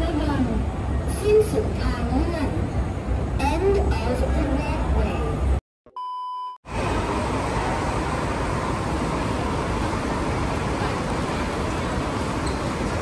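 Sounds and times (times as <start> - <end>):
hum of a large hall: 0.0 - 5.6, 6.7 - 13.0
short beep: 5.9 - 6.6.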